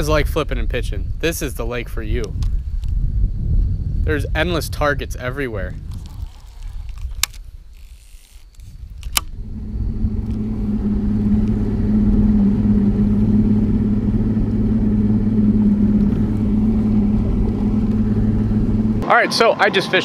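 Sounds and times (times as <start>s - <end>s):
outboard motor running: 9.2s - 19.1s.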